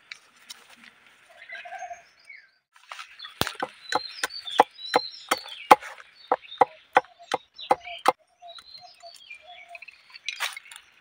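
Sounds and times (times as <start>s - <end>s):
blade chopping bamboo: 3.4s - 4.7s, 5.3s - 6.0s.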